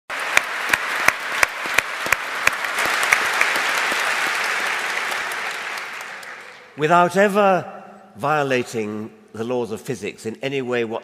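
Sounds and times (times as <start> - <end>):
nearby person clapping steadily: 0.1 - 6.7
large audience applauding: 0.1 - 6.8.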